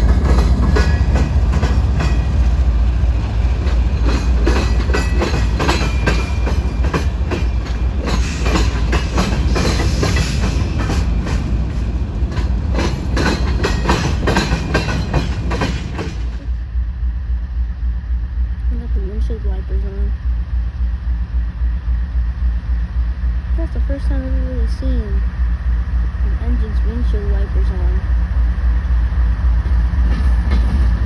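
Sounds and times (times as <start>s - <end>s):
train wheels clacking over rail joints: 0.0s - 2.7s, 3.4s - 16.5s, 29.6s - 31.0s
deep train rumble: 0.0s - 31.0s.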